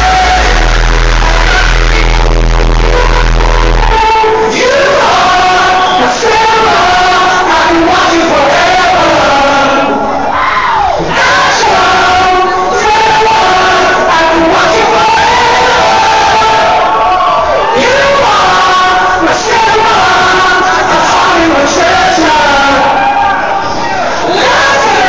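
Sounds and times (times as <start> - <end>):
heavy dubstep bass: 0.0 - 4.2
crowd screaming and cheering: 0.0 - 25.0
crowd singing together: 0.0 - 25.0.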